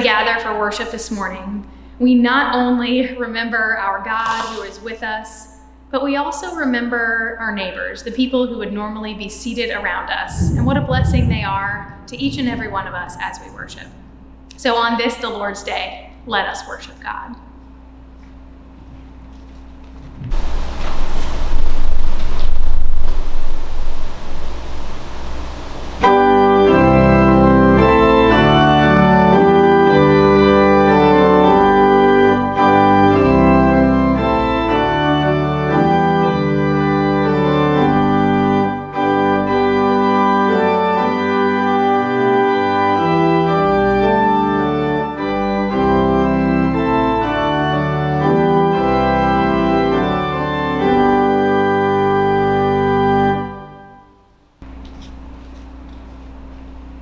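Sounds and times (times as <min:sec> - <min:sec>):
organ playing held chords: 0:26.0 - 0:54.1.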